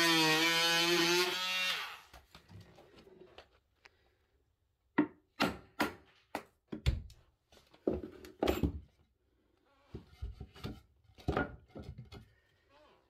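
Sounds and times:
wooden knocks and thuds: 0:10.0 - 0:12.2.

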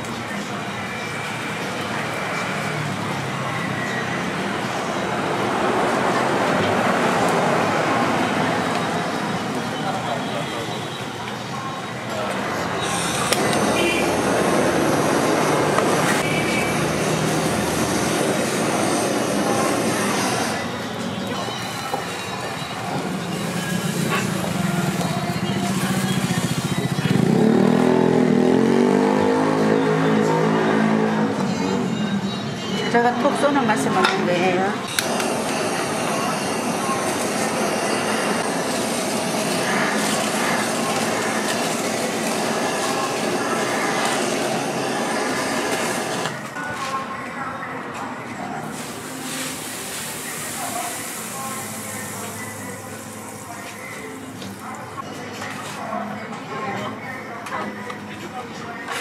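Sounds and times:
engine running and revving: 0:25.5 - 0:32.0
food sizzling on a griddle: 0:48.7 - 0:54.1.

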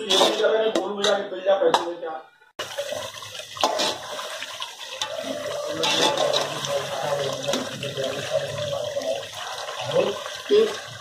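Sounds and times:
water sloshing in a pot: 0:02.6 - 0:11.0.

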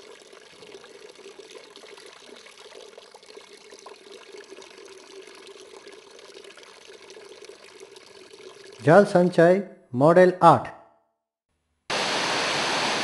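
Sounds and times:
water pouring into plastic basin: 0:00.0 - 0:09.0.

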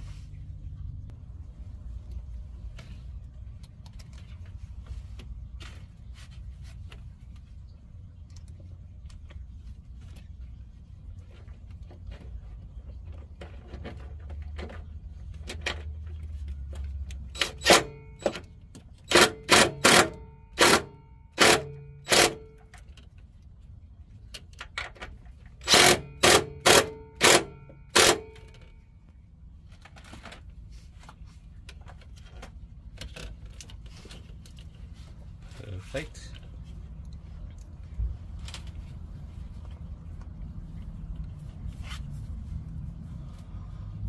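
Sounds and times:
cordless drill whine in bursts: 0:25.6 - 0:28.4.

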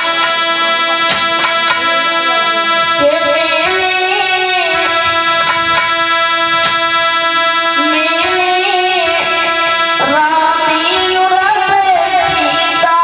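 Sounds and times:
harmonium: 0:00.0 - 0:13.0
woman singing devotional melody: 0:02.8 - 0:05.5, 0:07.2 - 0:13.0
hand drum strokes: 0:04.9 - 0:06.9.

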